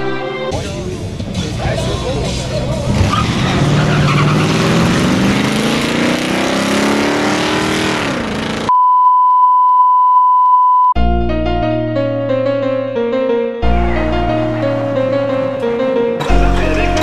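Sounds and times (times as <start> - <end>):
drag racing engines accelerating: 0.6 - 8.7
steady test-tone beep: 8.7 - 11.0.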